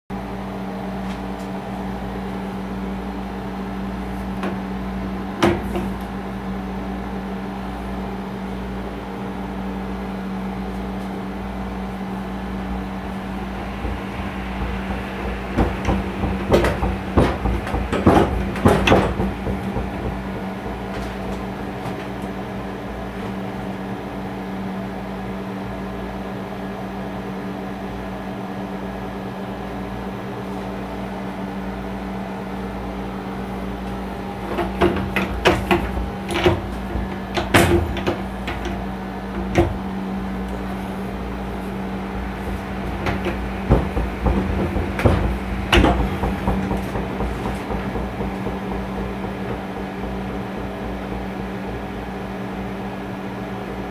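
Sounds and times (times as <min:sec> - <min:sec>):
honey extractor humming: 0:00.2 - 0:25.4, 0:32.8 - 0:53.9
clattering and knocking: 0:05.4 - 0:06.2, 0:12.5 - 0:22.4, 0:34.2 - 0:53.0
knock: 0:13.0 - 0:22.1, 0:34.5 - 0:39.9, 0:42.3 - 0:52.2.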